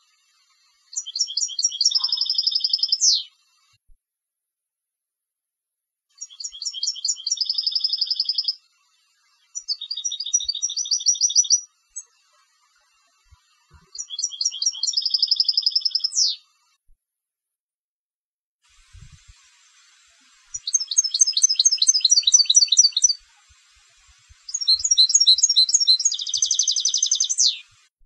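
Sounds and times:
finch singing twittering trills: 0:01.0 - 0:03.3, 0:06.2 - 0:08.6, 0:09.6 - 0:12.1, 0:13.9 - 0:16.4, 0:20.5 - 0:23.2, 0:24.5 - 0:27.7.

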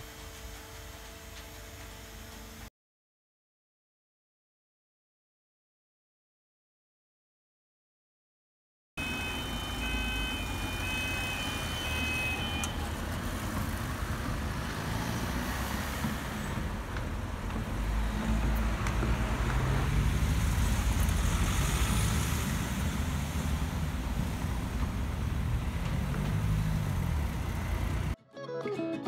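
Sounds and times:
two-tone electronic warning tone: 0:09.0 - 0:12.9
car engines running: 0:09.0 - 0:28.2.

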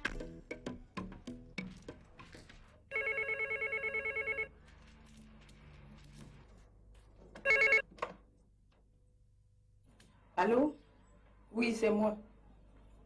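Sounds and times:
telephone ringing electronic trill: 0:02.9 - 0:04.5, 0:07.5 - 0:07.8.

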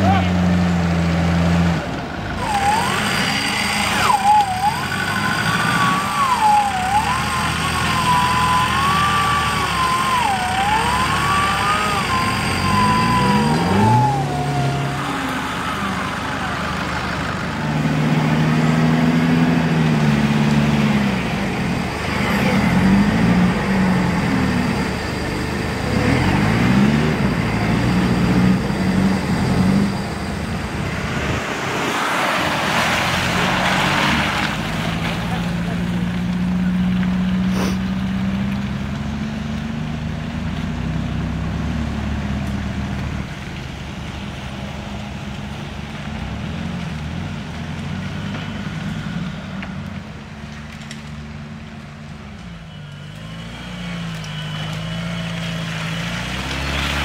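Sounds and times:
off-road engine revving: 0:00.0 - 0:57.0
high wavering whine: 0:02.4 - 0:17.7.

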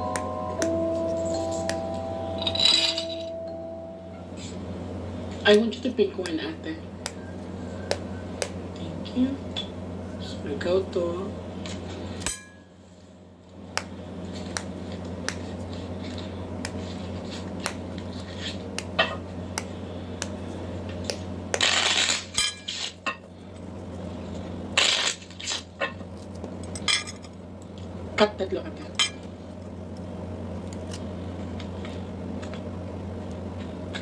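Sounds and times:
steady low hum: 0:00.0 - 0:34.0
knife cutting fruit rind: 0:13.8 - 0:23.0.

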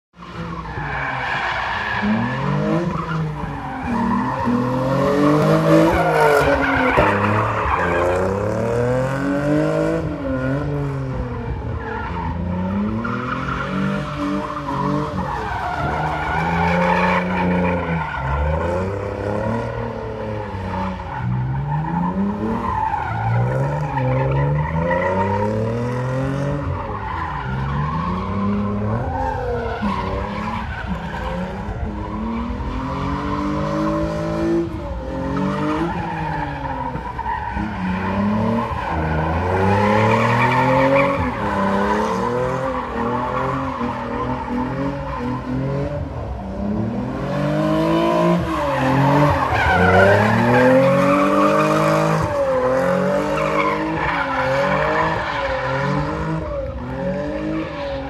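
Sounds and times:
tyres squealing on asphalt: 0:00.2 - 0:58.0
car engine revving: 0:00.3 - 0:58.0.

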